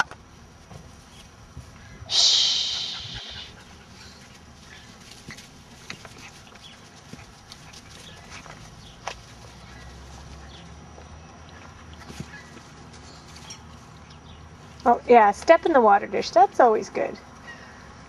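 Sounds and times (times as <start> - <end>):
high-pitched hissy sound: 2.1 - 3.7.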